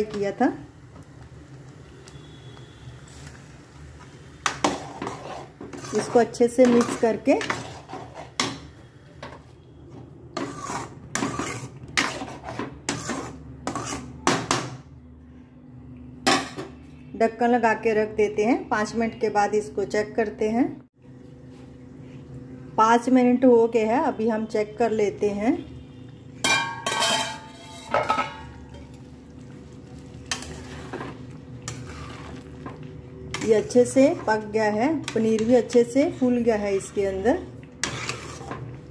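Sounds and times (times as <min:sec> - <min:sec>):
ladle scraping metal pan: 0:04.6 - 0:08.5, 0:10.4 - 0:14.2, 0:26.4 - 0:28.9, 0:30.2 - 0:38.8
metal cookware clanking: 0:26.4 - 0:29.0.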